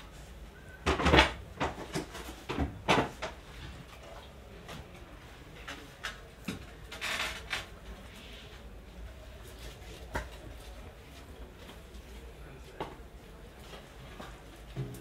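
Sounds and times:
tile slabs knocking and clattering: 0:00.9 - 0:03.4.

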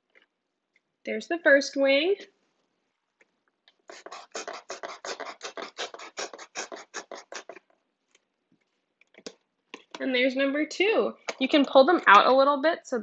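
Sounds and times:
knife sawing through cardboard: 0:03.9 - 0:07.6.

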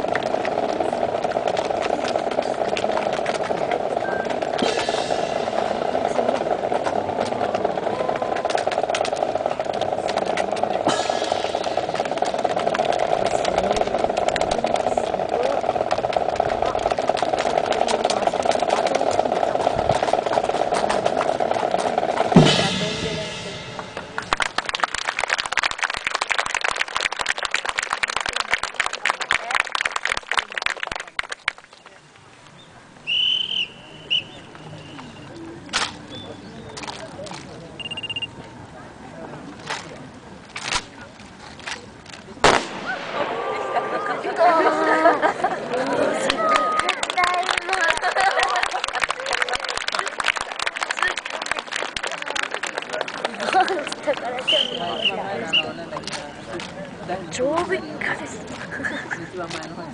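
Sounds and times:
hand claps: 0:24.0 - 0:31.8, 0:45.8 - 0:54.5
whistle blast: 0:33.0 - 0:35.1, 0:54.5 - 0:55.8.

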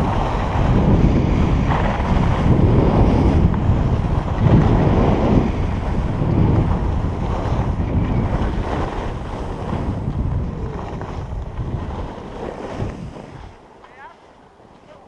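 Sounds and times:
wind buffeting microphone: 0:00.0 - 0:15.0
skis hissing on snow: 0:04.2 - 0:15.0.

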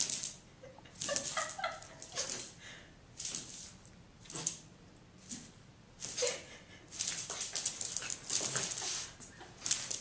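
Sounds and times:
dogs scuffling on hard floor: 0:05.2 - 0:10.0.

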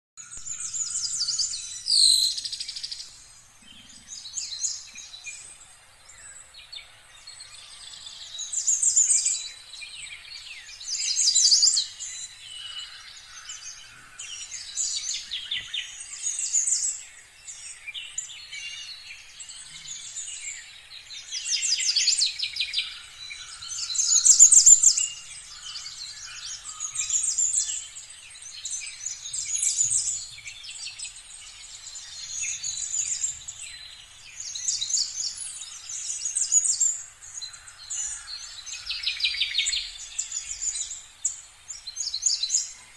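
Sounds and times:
birds singing and chirping: 0:00.2 - 0:42.9.

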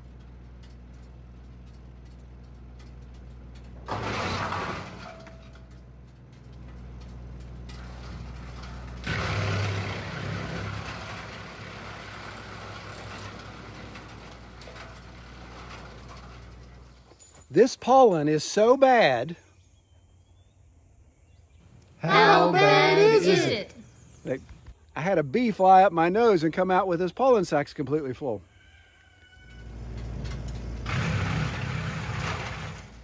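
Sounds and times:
wood chipper grinding branches: 0:00.0 - 0:17.2, 0:29.6 - 0:33.0
tractor engine hum: 0:00.0 - 0:19.2, 0:21.5 - 0:33.0.

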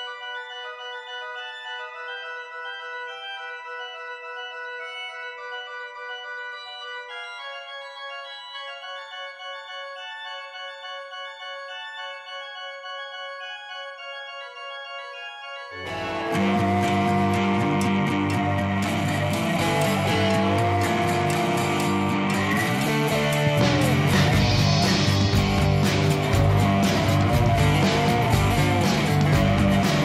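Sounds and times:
organ playing slow chords: 0:00.0 - 0:30.0
music track with guitar: 0:15.7 - 0:30.0.

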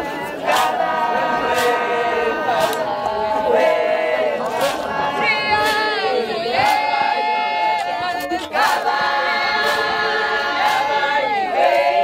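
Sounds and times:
group singing unaccompanied: 0:00.0 - 0:12.0
sharp percussive hits: 0:00.4 - 0:03.8.

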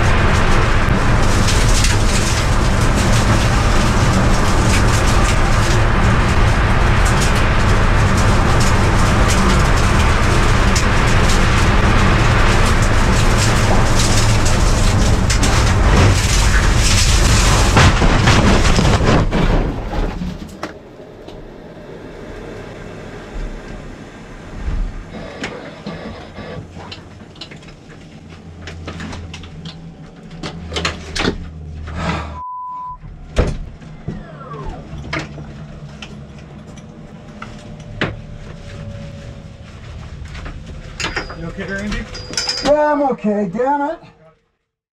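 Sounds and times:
car crashing and rolling: 0:00.0 - 0:32.2
falling whine: 0:00.0 - 0:43.2
clicks and creaks: 0:24.7 - 0:32.1
short electronic beep: 0:32.4 - 0:33.0.

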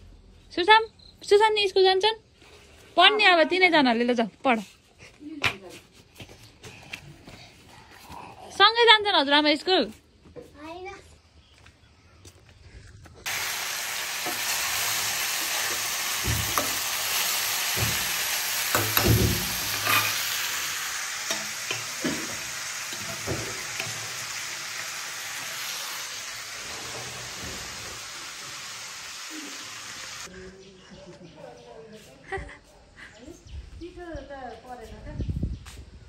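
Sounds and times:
food sizzling in metal pan: 0:13.3 - 0:30.3
metal utensil clinking on pans: 0:18.6 - 0:20.2.

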